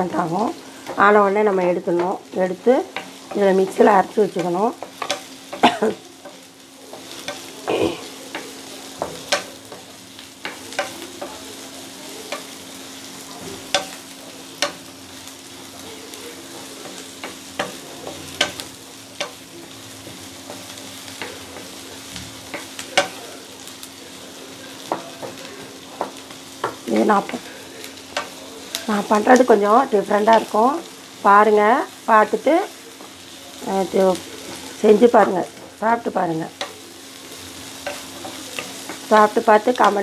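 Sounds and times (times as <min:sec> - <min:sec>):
onions sizzling in oil: 0:00.0 - 0:40.0
spatula scraping pan: 0:00.2 - 0:11.5.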